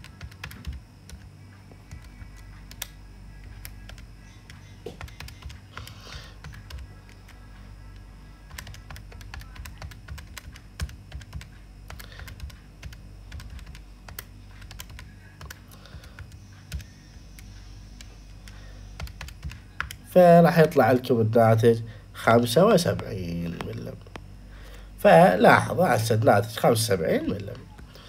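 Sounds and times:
calculator keys clicking: 0:00.0 - 0:01.3, 0:08.5 - 0:20.0.

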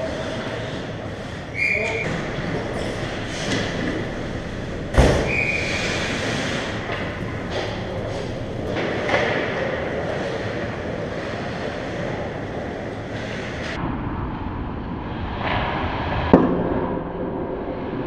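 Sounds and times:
arena noise: 0:00.0 - 0:13.8
skates scraping on ice: 0:00.0 - 0:13.8.

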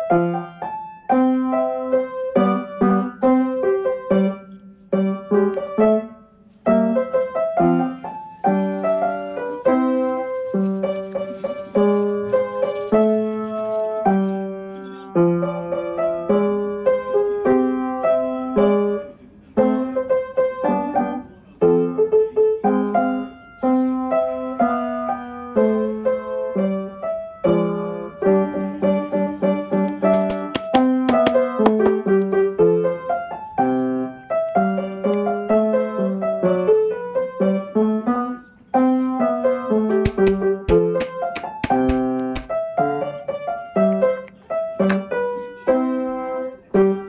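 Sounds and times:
piano music: 0:00.0 - 0:47.0.

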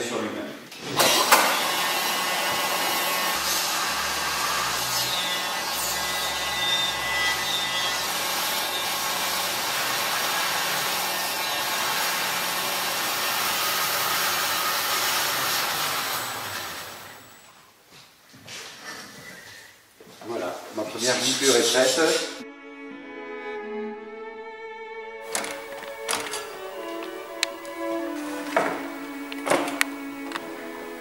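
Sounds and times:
wooden wheel rubbing whir: 0:03.3 - 0:17.3, 0:25.3 - 0:31.0.

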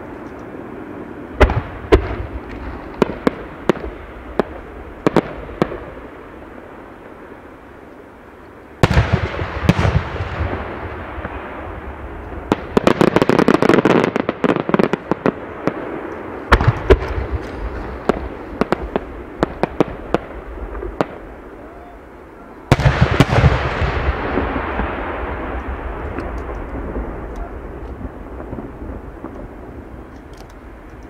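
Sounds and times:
fireworks booming and crackling: 0:00.0 - 0:31.0
rumbling echo: 0:22.5 - 0:30.8.

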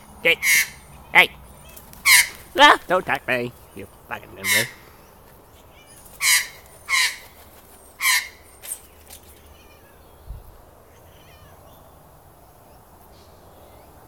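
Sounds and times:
magpie harsh calls: 0:00.0 - 0:08.9.

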